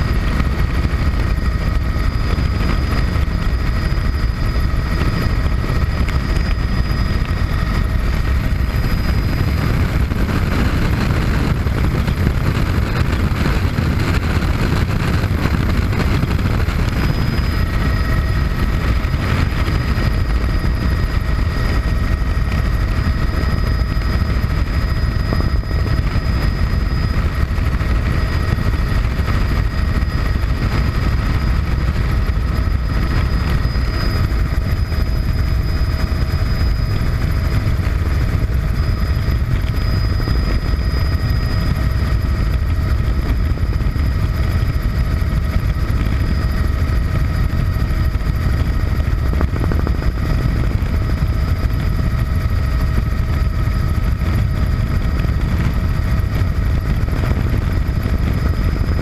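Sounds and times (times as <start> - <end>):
faint high whining tones: 0.0 - 59.0
helicopter rotor and turbine rumble: 0.0 - 59.0.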